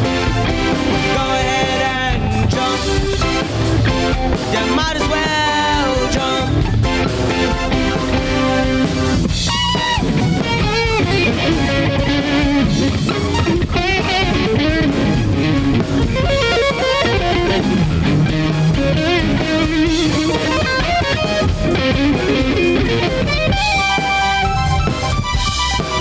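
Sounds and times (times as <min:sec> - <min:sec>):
electric guitar lead bending notes: 0:00.0 - 0:26.0
live rock band playing: 0:00.0 - 0:26.0.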